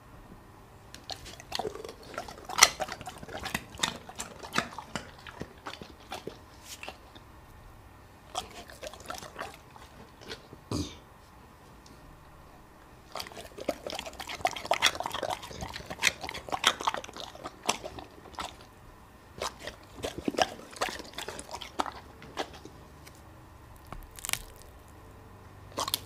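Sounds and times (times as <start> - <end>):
dog licking its lips: 1.0 - 7.2.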